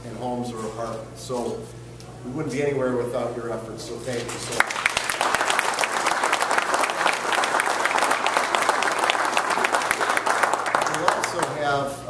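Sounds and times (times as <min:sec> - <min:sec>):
audience clapping: 0:04.5 - 0:11.8.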